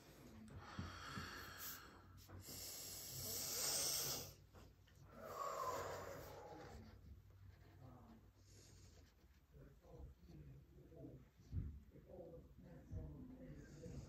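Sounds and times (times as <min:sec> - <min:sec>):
heavy breathing with rasp: 0:00.0 - 0:07.2.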